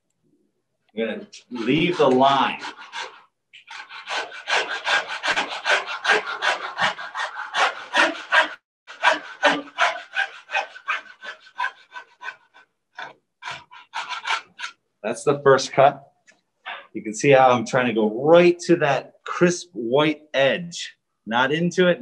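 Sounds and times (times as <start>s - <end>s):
coping saw cutting wood: 1.4s - 14.8s.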